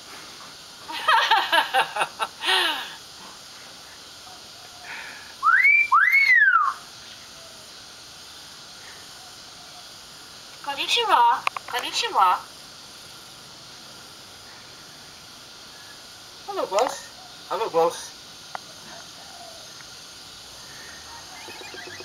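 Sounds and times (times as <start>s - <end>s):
myna loud arching whistles: 5.4s - 6.9s, 20.9s - 22.0s
myna chattering notes: 21.3s - 22.0s.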